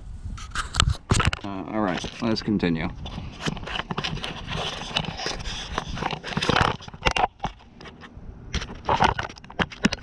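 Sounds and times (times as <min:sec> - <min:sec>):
camera handling noise: 0:00.4 - 0:02.2, 0:03.0 - 0:10.0.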